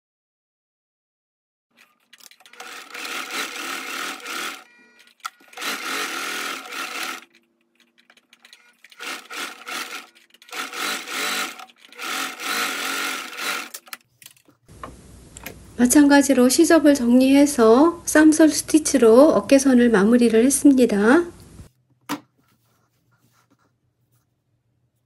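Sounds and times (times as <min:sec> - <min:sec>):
sewing machine stitching: 0:01.7 - 0:14.0.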